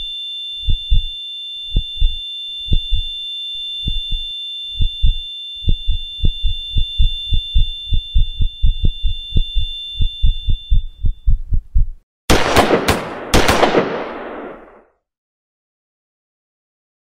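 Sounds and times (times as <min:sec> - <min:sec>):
high-pitched ringing tone: 0:00.0 - 0:11.4
heartbeat thumps: 0:00.6 - 0:03.2, 0:03.8 - 0:12.0
gunshots: 0:12.3 - 0:14.8.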